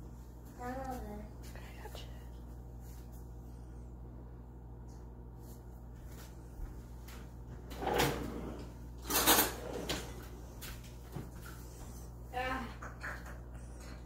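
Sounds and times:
kitchen drawer sliding: 7.7 - 10.2.

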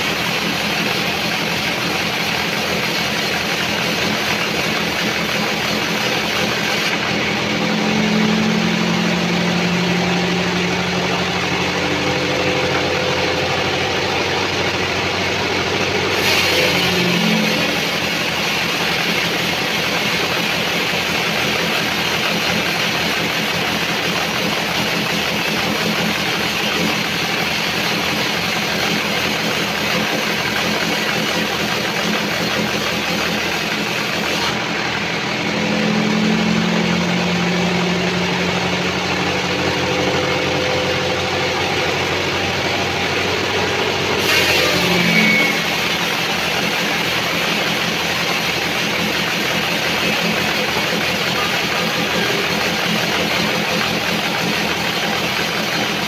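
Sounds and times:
band saw cutting log: 0.0 - 56.0
low hum: 33.6 - 46.2.

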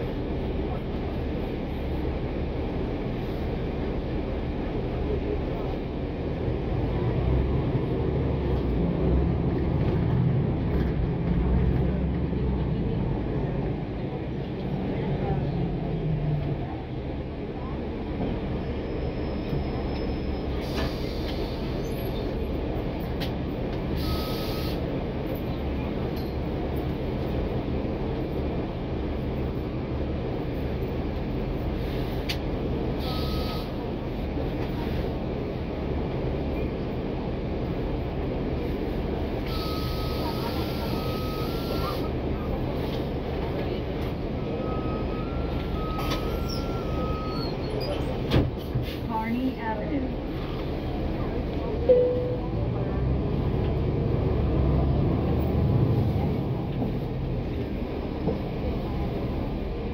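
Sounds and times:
bus engine drone: 0.0 - 59.9
road noise: 0.0 - 59.9
short high tone: 51.9 - 52.5.

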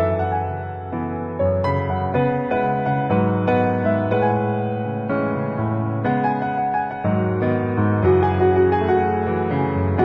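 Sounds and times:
gentle piano melody: 0.0 - 10.0.

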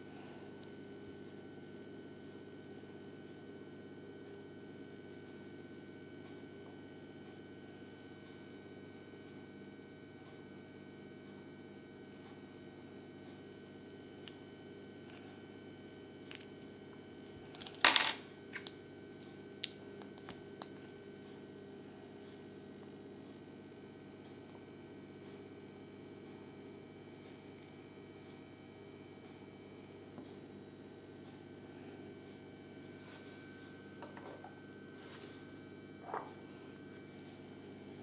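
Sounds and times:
low steady hum: 10.6 - 38.0.

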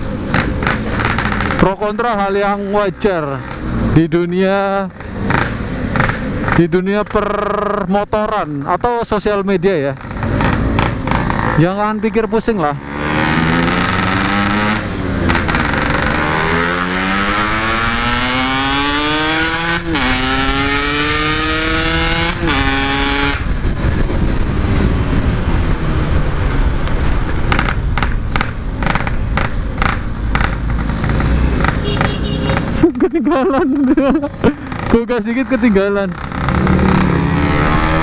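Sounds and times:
motorcycle accelerating through gears: 0.0 - 7.8, 8.4 - 32.8, 33.7 - 38.0
wind and road noise: 0.0 - 38.0
gusty wind thumps: 12.9 - 32.8.

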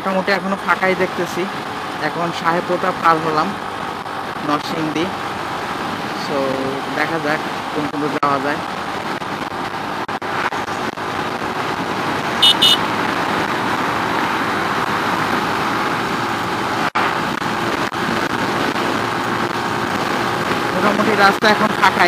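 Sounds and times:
motorcycle wind and road rush: 0.0 - 22.0
horn beeps: 12.4 - 12.8.

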